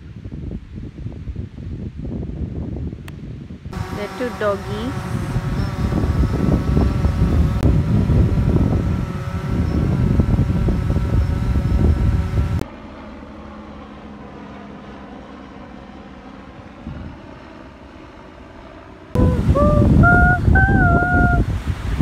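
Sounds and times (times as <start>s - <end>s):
wind buffeting microphone: 0.0s - 12.6s, 16.8s - 17.4s, 19.2s - 22.0s
faint steady hum: 3.7s - 12.6s, 19.2s - 21.9s.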